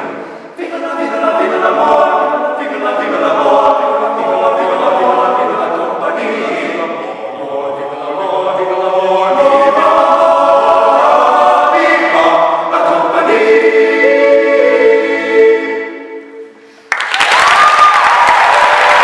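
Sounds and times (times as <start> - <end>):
men's a cappella singing: 0.0 - 16.3
audience applause: 16.9 - 19.0
audience cheering: 16.9 - 19.0.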